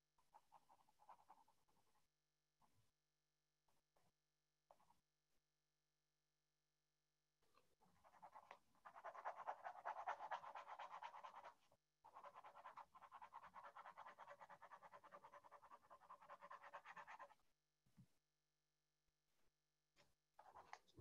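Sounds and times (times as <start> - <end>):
pen scratching on paper: 0.2 - 2.1, 7.8 - 17.4, 20.4 - 20.8.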